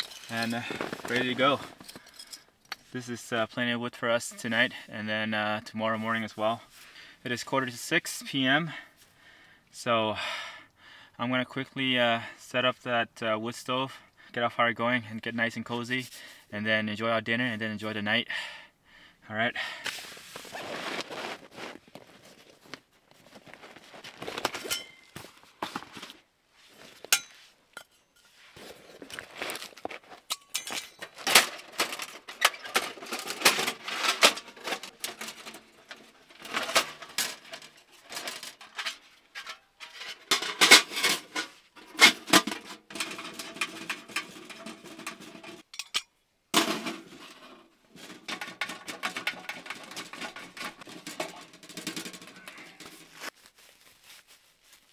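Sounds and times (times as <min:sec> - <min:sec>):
metal parts clanking and rattling: 0:00.0 - 0:02.5, 0:30.2 - 0:53.2.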